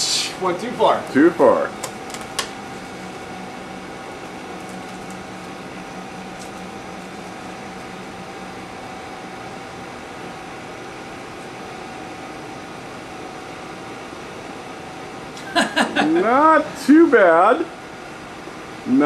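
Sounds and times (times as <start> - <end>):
ventilation hum: 0.0 - 19.0.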